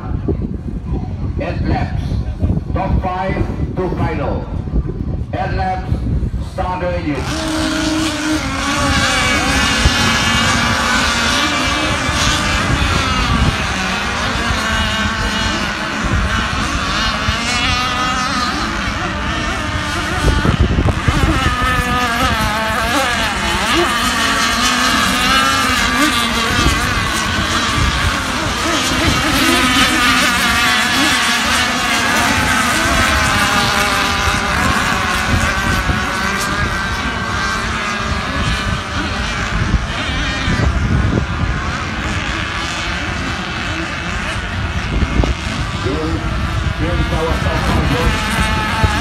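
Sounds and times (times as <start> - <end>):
small engines whining: 6.4 - 49.0.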